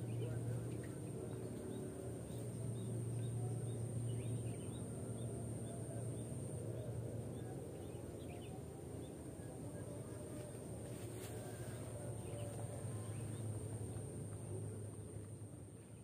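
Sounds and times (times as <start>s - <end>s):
faint high-pitched whine: 0.0s - 16.0s
steady low hum: 0.0s - 16.0s.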